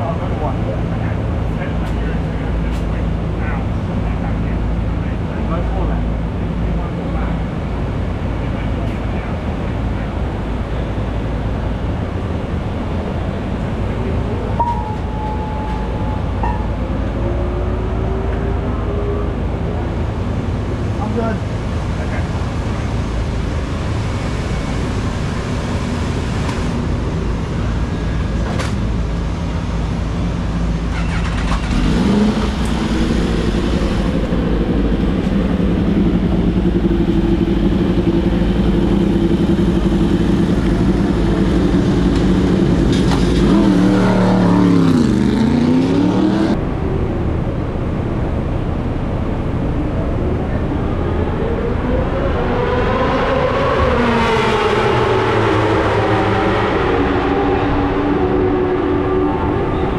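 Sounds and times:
motorcycle engine idling and revving: 0.0s - 59.9s
steady background noise: 0.0s - 59.9s.

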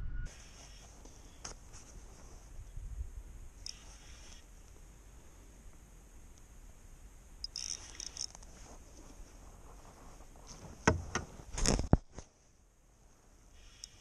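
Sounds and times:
hand rubbing against camera: 0.3s - 2.7s, 3.7s - 4.5s, 7.6s - 12.5s
camera handling clicks and rattles: 7.4s - 8.6s
sharp knocks: 10.8s - 11.3s.

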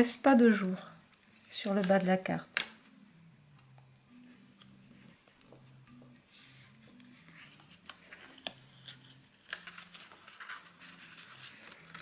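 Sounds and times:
paper rustling and crinkling: 6.4s - 12.0s.

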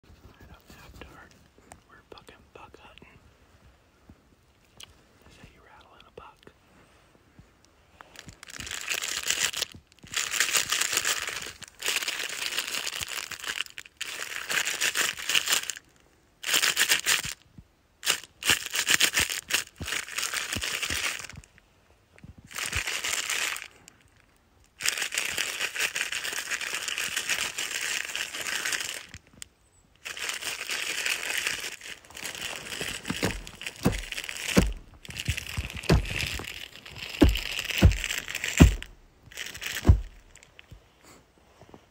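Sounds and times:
low thumps: 32.3s - 39.1s, 39.7s - 40.4s.

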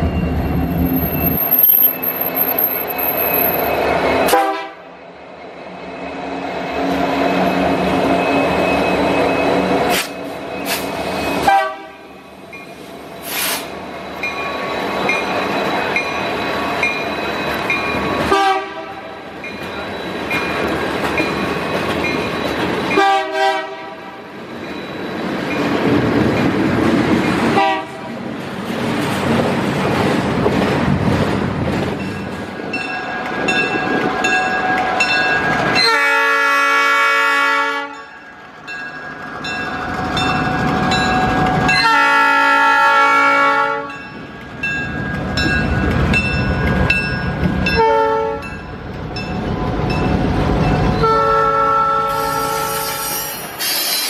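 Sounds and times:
rumble of a train: 0.0s - 54.0s
diesel locomotive horn blasts: 4.3s - 4.9s, 11.4s - 12.1s, 18.3s - 19.2s, 22.9s - 24.2s, 27.5s - 28.1s, 35.8s - 38.1s, 41.7s - 44.0s, 47.8s - 48.5s, 51.0s - 53.2s.

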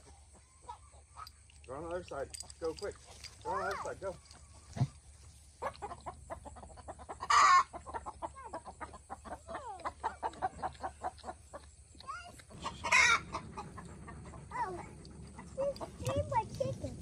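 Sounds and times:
chickens clucking: 0.0s - 17.0s
harsh hen squawks: 5.6s - 11.1s, 12.5s - 13.8s.

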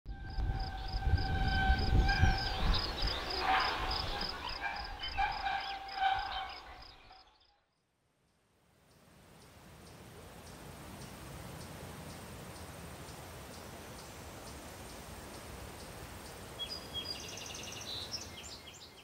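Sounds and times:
wind rumble: 0.1s - 7.2s
steady whistling tones: 0.1s - 7.3s.

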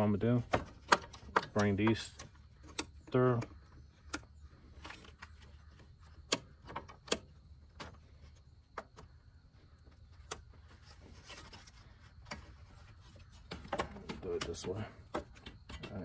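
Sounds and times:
soft scraping rub: 10.6s - 13.5s.

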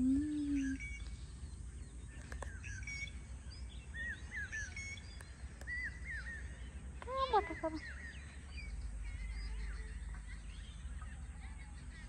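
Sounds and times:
small birds chirping: 0.0s - 12.0s.

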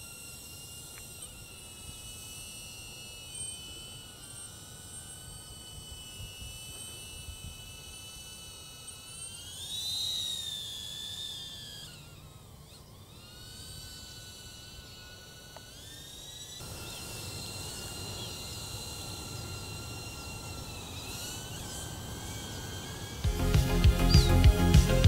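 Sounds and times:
drone propellers whining: 0.0s - 25.0s.

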